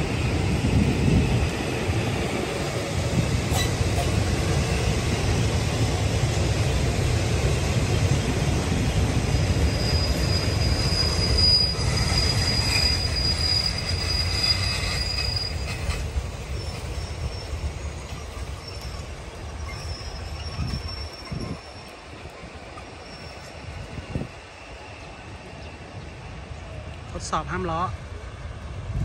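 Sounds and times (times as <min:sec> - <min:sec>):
train coaches rumbling on rails: 0:00.0 - 0:29.0
high-pitched wheel squeal: 0:09.3 - 0:22.0, 0:22.8 - 0:23.7.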